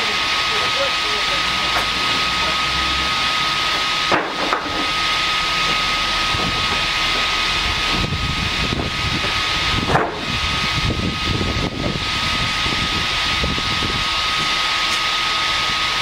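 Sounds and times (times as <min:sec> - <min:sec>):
band saw hissing and whining: 0:00.0 - 0:16.0.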